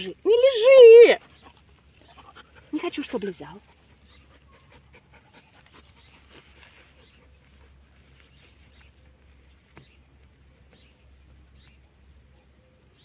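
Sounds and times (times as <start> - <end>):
crickets chirring: 0.0 - 13.0
dog panting: 1.2 - 8.2.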